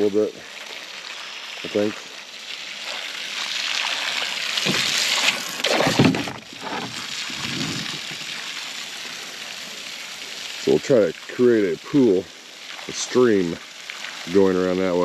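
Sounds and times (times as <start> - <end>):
hose water spraying onto pond: 0.0 - 15.0
dull thumps: 4.6 - 5.0, 5.6 - 8.3.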